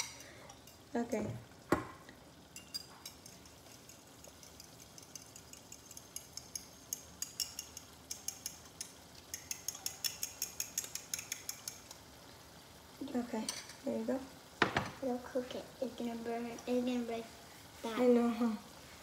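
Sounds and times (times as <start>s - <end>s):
fork clinking against bowl: 2.6s - 11.9s.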